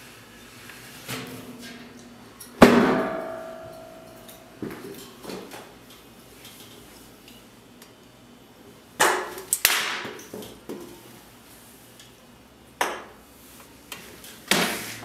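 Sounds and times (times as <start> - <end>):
loud bang with ringing tail: 2.6 - 4.2.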